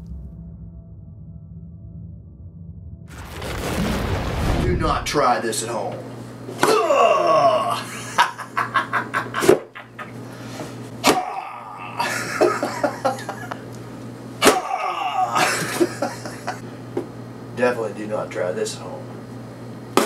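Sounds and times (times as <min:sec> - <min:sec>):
man laughing and grunting: 0:06.6 - 0:10.2, 0:11.0 - 0:13.6, 0:14.4 - 0:16.6
machete striking cardboard box: 0:11.0 - 0:11.4, 0:14.4 - 0:14.7.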